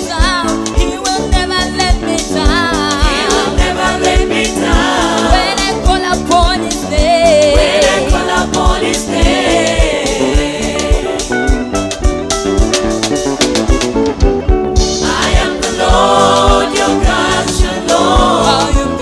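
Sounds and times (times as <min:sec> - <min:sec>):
woman singing: 0:00.0 - 0:09.1
bass guitar: 0:00.0 - 0:19.0
drum kit beat: 0:00.0 - 0:19.0
choir singing: 0:02.1 - 0:05.9, 0:07.2 - 0:11.4, 0:14.9 - 0:19.0.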